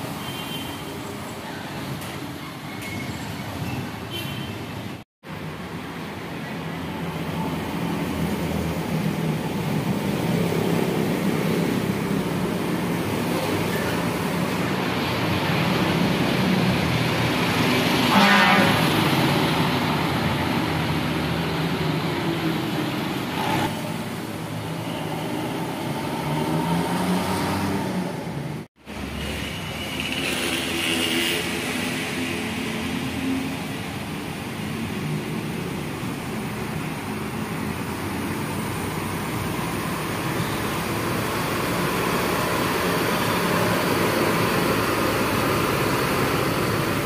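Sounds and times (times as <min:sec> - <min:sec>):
vehicle horn blast: 0:18.1 - 0:18.9
diesel coach driving past: 0:37.8 - 0:47.0.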